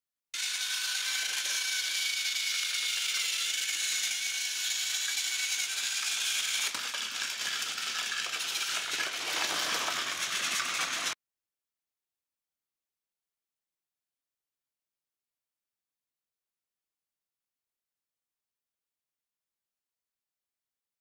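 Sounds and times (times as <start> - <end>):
gears and wheels rattling: 0.4 - 11.2
toy train motor whine: 0.4 - 11.2.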